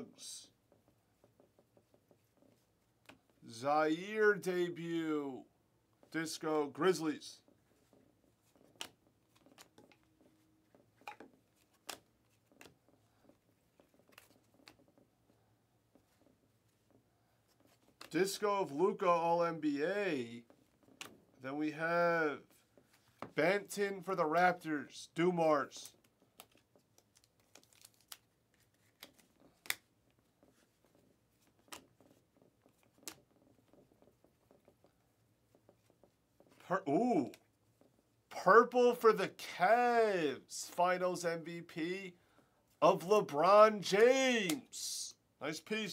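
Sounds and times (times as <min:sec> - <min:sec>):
cards snapping as flipped: 0:08.6 - 0:10.0, 0:11.0 - 0:12.8, 0:13.9 - 0:14.9, 0:25.8 - 0:29.9, 0:31.5 - 0:33.3.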